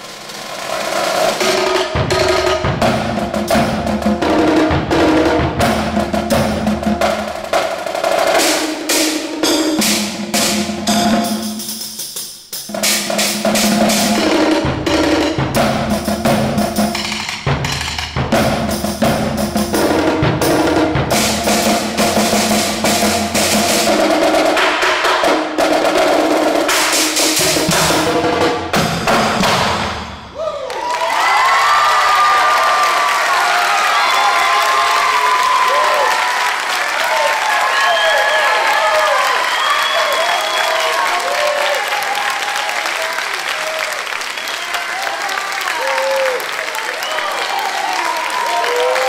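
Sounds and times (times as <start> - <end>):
percussion ensemble playing drums: 0.0 - 30.5.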